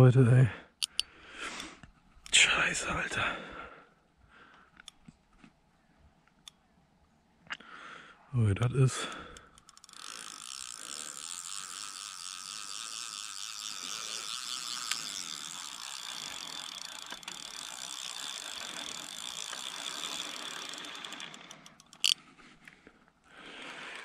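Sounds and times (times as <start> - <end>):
fishing reel ratchet ticking: 0.8 - 1.7, 9.0 - 22.2.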